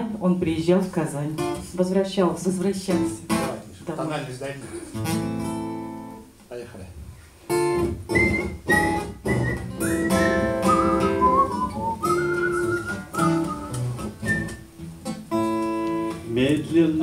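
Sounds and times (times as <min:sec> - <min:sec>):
acoustic guitar strumming: 0:04.8 - 0:06.4, 0:07.5 - 0:17.0
high wordless melody: 0:08.1 - 0:16.1.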